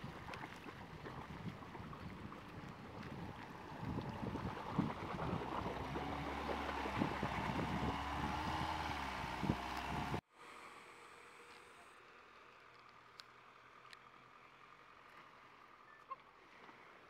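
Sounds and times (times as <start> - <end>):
water rushing and splashing: 0.0 - 10.2
car engine running: 1.8 - 10.2.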